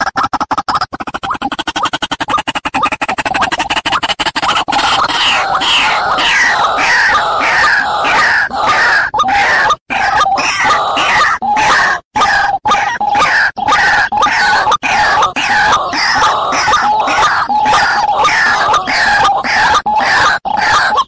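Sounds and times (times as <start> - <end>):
waterhen calling: 4.4 - 21.0.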